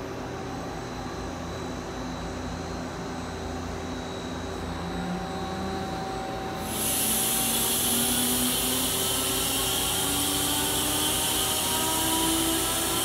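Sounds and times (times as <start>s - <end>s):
machine humming: 1.8s - 13.0s
compressed air hissing: 6.6s - 13.0s.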